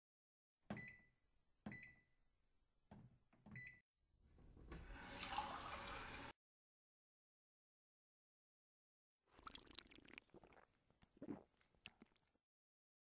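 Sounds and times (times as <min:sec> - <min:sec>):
recorded water pouring sound: 0:04.7 - 0:06.4, 0:09.3 - 0:12.4.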